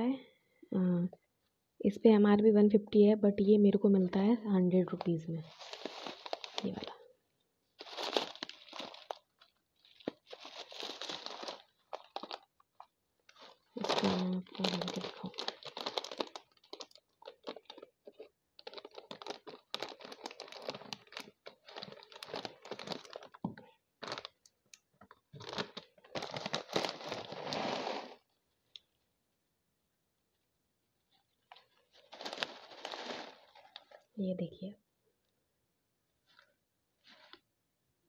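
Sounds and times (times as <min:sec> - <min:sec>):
plastic packet crinkling: 0:04.9 - 0:07.1, 0:07.8 - 0:28.3, 0:31.4 - 0:34.2.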